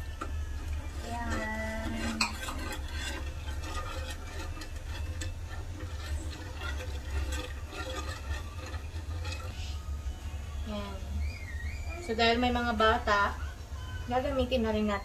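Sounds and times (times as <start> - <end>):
metal ladle scraping a pan: 0.0 - 10.2
steady low hum: 0.0 - 15.0.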